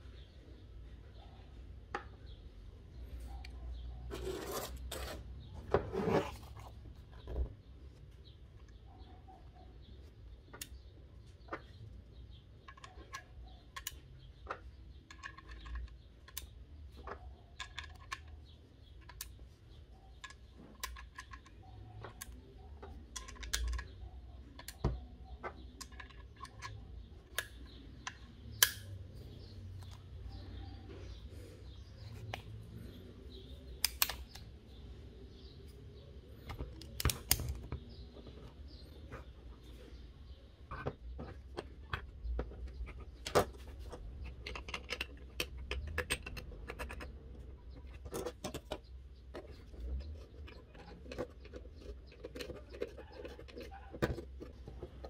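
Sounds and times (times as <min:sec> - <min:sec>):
sharp metallic snaps: 0:27.3 - 0:29.0, 0:33.8 - 0:34.5.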